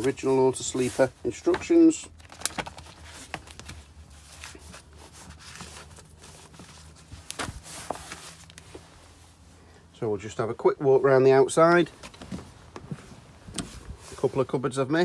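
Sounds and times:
paper pages rustling: 0:00.0 - 0:09.0.

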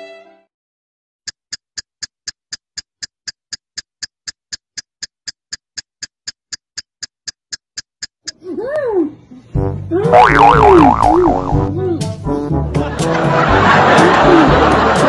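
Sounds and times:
clock ticking: 0:01.3 - 0:08.5.

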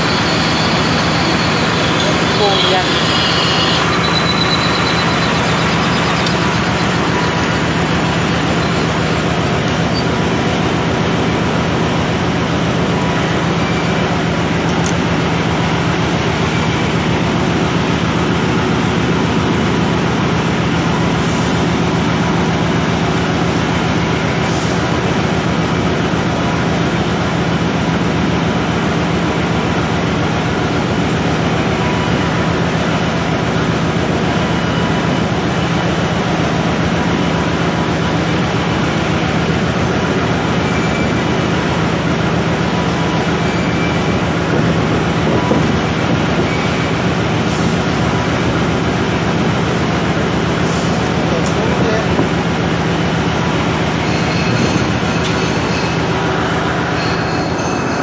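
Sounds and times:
metal lathe motor humming: 0:00.0 - 0:10.4.

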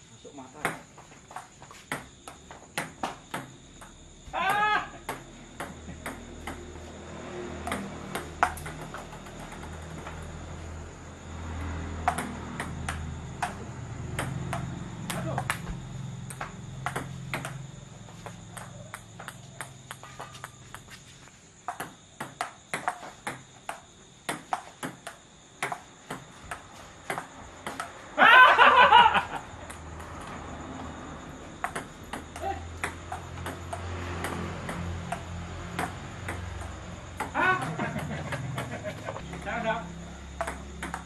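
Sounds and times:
ping pong ball hitting bats: 0:00.6 - 0:06.9, 0:07.5 - 0:10.3, 0:11.6 - 0:28.1, 0:29.2 - 0:30.4, 0:31.5 - 0:41.0
ping pong ball bouncing on table: 0:01.9 - 0:02.2, 0:02.8 - 0:06.8, 0:07.6 - 0:10.0, 0:12.0 - 0:17.6, 0:18.2 - 0:20.8, 0:21.7 - 0:28.0, 0:31.6 - 0:39.5, 0:40.4 - 0:41.0.

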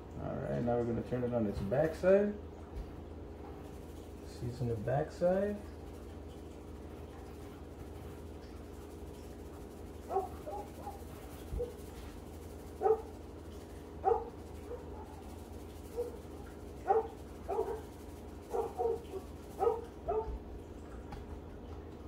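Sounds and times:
steady low hum: 0:00.0 - 0:22.0
dog yipping: 0:10.1 - 0:11.8, 0:12.8 - 0:13.1, 0:14.0 - 0:15.2, 0:15.9 - 0:16.2, 0:16.8 - 0:17.8, 0:18.5 - 0:20.4.

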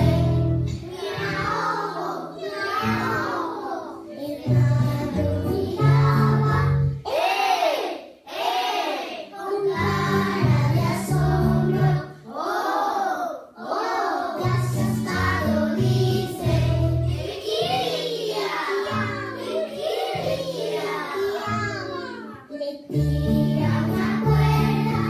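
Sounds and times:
instrumental backing with bass: 0:00.0 - 0:01.6, 0:04.5 - 0:07.0, 0:09.8 - 0:12.0, 0:14.5 - 0:17.4, 0:22.9 - 0:25.0
children singing in unison: 0:00.0 - 0:25.0.

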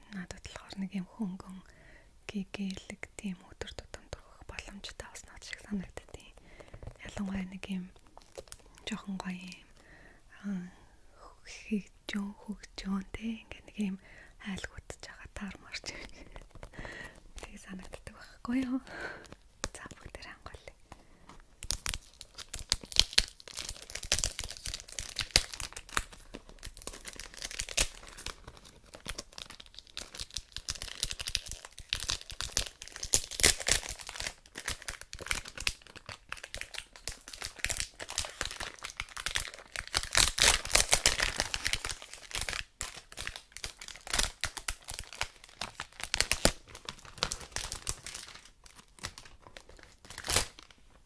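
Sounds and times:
plastic wrap crinkling and tearing: 0:07.8 - 0:09.8, 0:15.7 - 0:20.7, 0:21.5 - 0:51.0.

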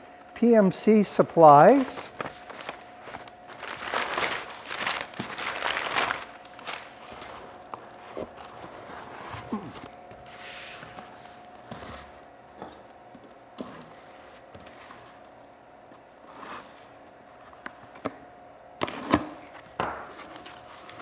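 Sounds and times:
cardboard rustling: 0:01.4 - 0:12.2.

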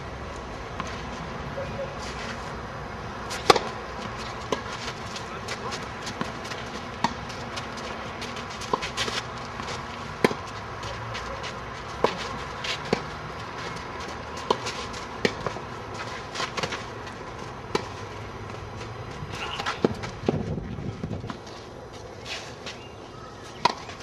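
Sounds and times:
tennis ball off racket strings: 0:03.3 - 0:05.2, 0:06.1 - 0:10.5, 0:17.7 - 0:18.6
ball bouncing on clay court: 0:03.4 - 0:20.5.

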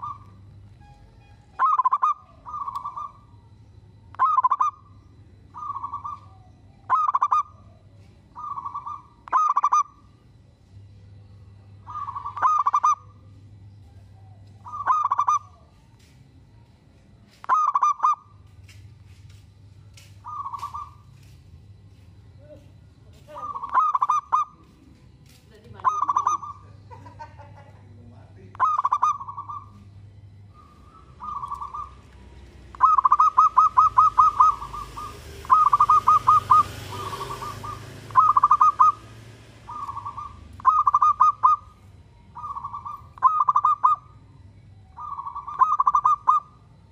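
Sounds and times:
dove cooing: 0:00.0 - 0:00.5, 0:01.1 - 0:03.5, 0:04.1 - 0:10.2, 0:11.8 - 0:15.8, 0:17.4 - 0:18.3, 0:20.2 - 0:21.2, 0:23.3 - 0:25.0, 0:25.7 - 0:27.7, 0:28.5 - 0:44.2, 0:44.8 - 0:46.8.

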